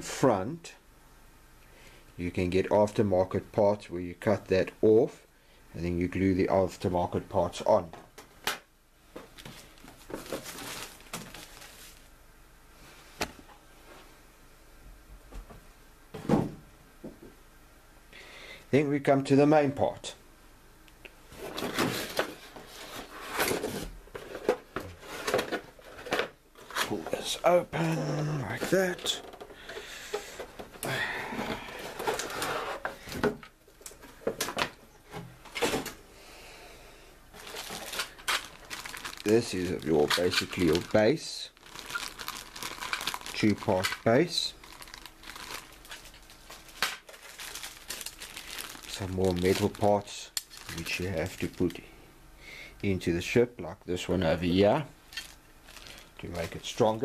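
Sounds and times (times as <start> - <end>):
plastic bag rustling: 9.3 - 12.1, 21.3 - 33.3, 37.3 - 51.8, 55.0 - 57.0.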